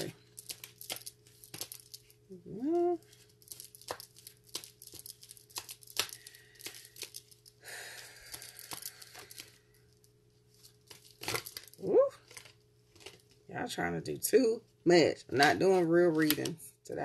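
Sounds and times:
cards being shuffled: 0.0 - 7.6, 8.2 - 9.6, 10.5 - 13.4, 16.1 - 16.6
person humming: 2.3 - 3.0, 11.8 - 12.2.

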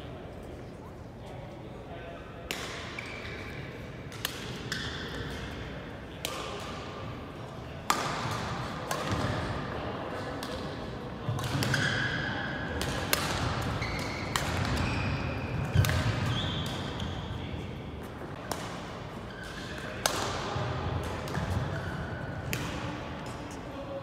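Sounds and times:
racket hitting shuttlecock: 2.5 - 3.5, 4.1 - 5.6, 6.2 - 6.9, 7.8 - 9.6, 10.2 - 17.1, 18.3 - 23.4
shoes squeaking on floor: 13.8 - 14.2.

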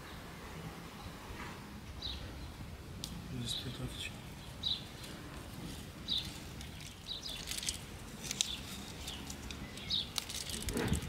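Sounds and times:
small birds chirping: 0.9 - 11.0.

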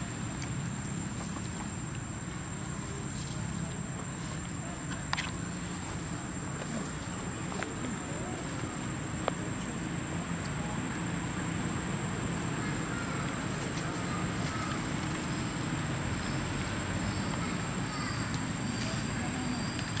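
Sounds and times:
constant hiss: 0.0 - 20.0.

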